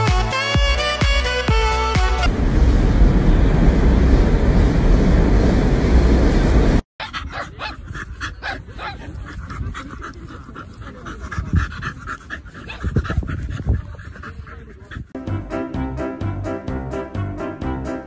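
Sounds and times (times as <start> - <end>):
dull low thumps: 0.0 - 6.8
subway car rumbling: 2.3 - 6.8
dog panting: 7.0 - 15.2.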